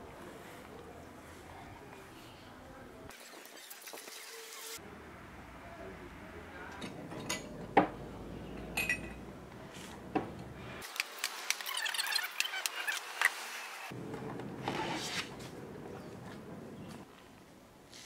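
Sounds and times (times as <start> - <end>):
drinking glasses clinking: 6.8 - 9.2.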